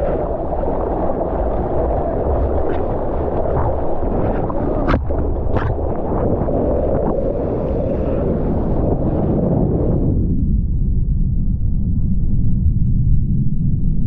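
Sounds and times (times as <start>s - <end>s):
water rushing and splashing: 0.0s - 9.9s.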